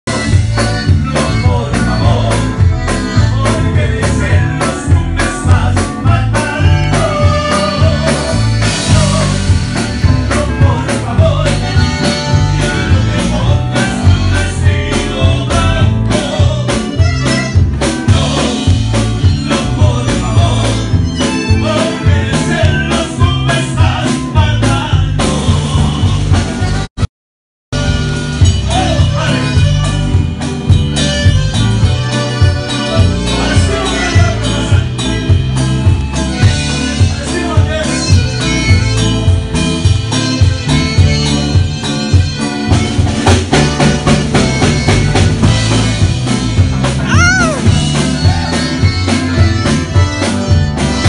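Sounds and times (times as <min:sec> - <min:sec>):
live band music: 0:00.0 - 0:27.1, 0:27.7 - 0:51.0
man singing: 0:00.1 - 0:26.9, 0:27.8 - 0:39.4, 0:47.0 - 0:50.1
steady drum beat: 0:00.1 - 0:27.1, 0:27.7 - 0:51.0.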